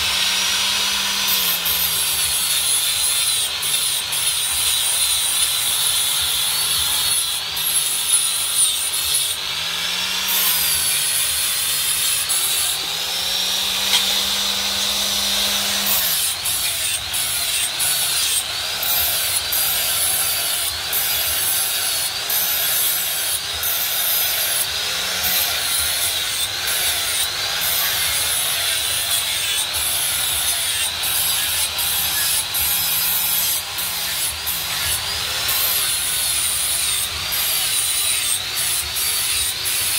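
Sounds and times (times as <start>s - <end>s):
angle grinder grinding steel: 0.0s - 39.9s.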